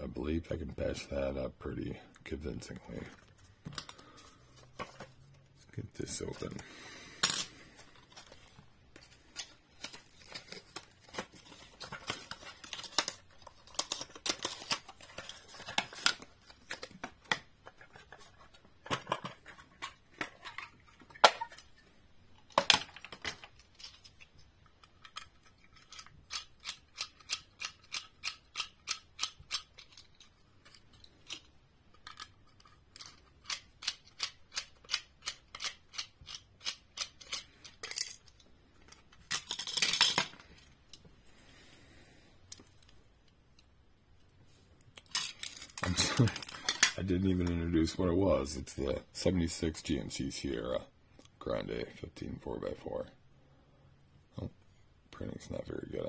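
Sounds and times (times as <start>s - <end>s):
plastic and cardboard packaging handled: 7.7s - 21.8s.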